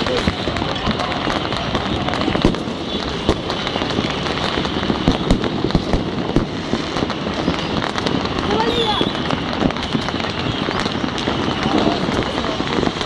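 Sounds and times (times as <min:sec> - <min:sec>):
fireworks crackling and banging: 0:00.0 - 0:13.0.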